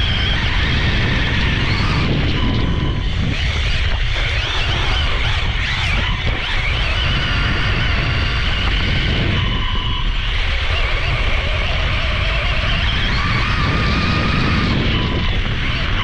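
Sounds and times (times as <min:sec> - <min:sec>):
electric motor whining: 0:00.0 - 0:16.0.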